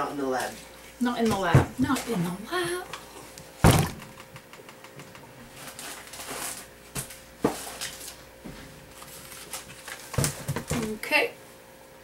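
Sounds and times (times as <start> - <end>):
sharp knocks: 3.6 - 4.4
plastic bag rustling: 5.5 - 10.9.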